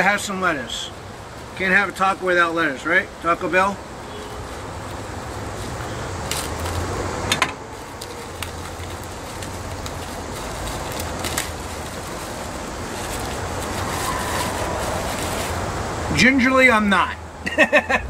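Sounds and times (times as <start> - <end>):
plastic bag crinkling: 4.3 - 7.0, 7.6 - 15.9.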